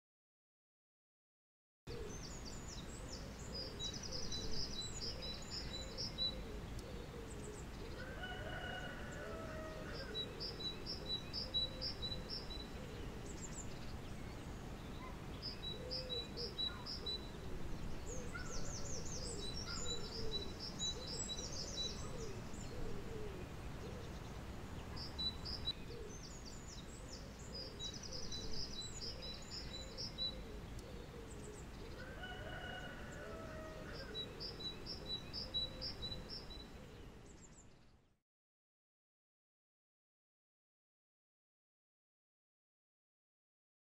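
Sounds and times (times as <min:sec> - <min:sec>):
songbird singing: 0:01.9 - 0:38.2
dove cooing: 0:03.0 - 0:13.3, 0:15.0 - 0:24.2, 0:25.8 - 0:26.2, 0:26.9 - 0:37.0.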